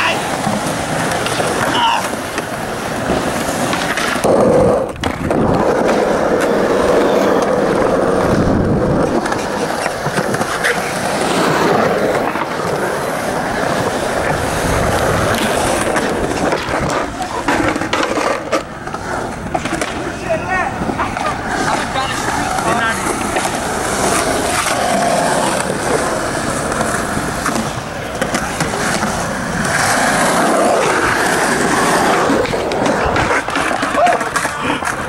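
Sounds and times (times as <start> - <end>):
skateboard clacks: 0.0 - 35.0
skateboard wheels rolling on concrete: 0.0 - 35.0.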